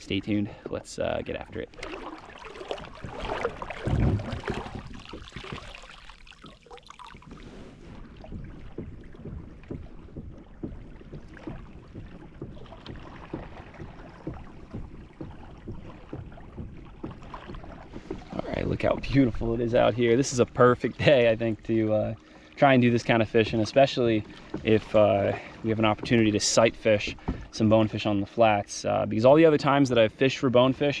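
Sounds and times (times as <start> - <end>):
water lapping against hull: 0.0 - 31.0
low thump: 1.7 - 6.0, 7.4 - 20.7, 23.5 - 28.0.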